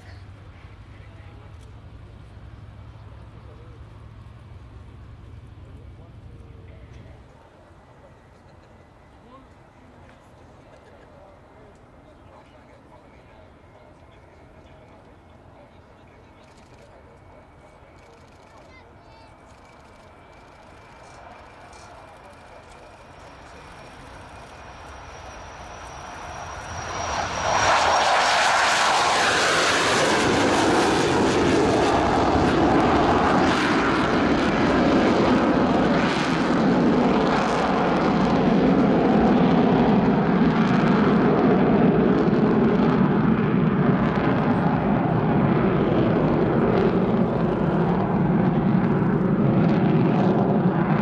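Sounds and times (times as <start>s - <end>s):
jet engine roar: 0.0s - 51.0s.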